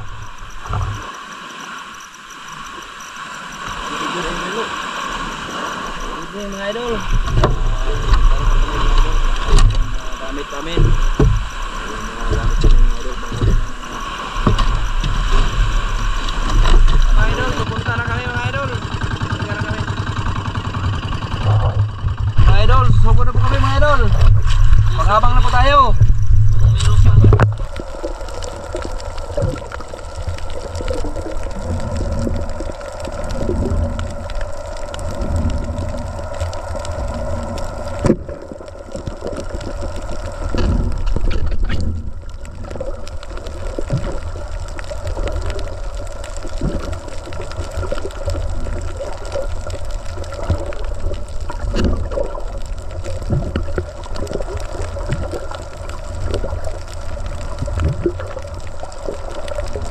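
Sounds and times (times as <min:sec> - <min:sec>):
water gurgling underwater: 0:00.0 - 0:01.6, 0:02.4 - 0:59.9
faint steady hum: 0:00.0 - 0:59.9
loud low rumble: 0:16.8 - 0:27.7.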